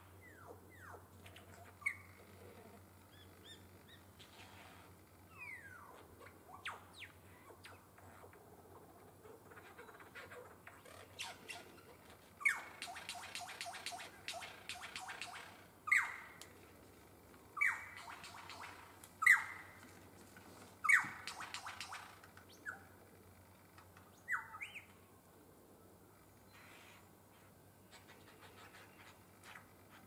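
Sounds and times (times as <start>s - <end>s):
bird calling: 0.2s - 4.5s, 9.2s - 16.4s, 17.6s - 19.8s, 20.8s - 23.0s, 24.1s - 25.0s.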